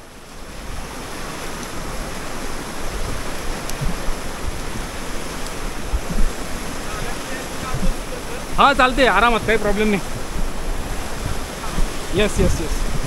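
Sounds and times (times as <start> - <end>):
waterfall rushing: 0.0 - 13.0
wind bumps on microphone: 0.0 - 13.0.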